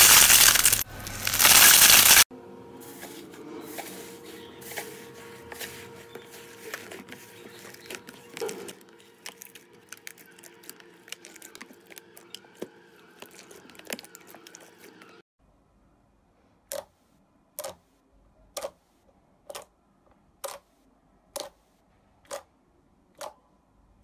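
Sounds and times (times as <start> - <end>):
slime kneaded by hand: 4.8 - 15.2.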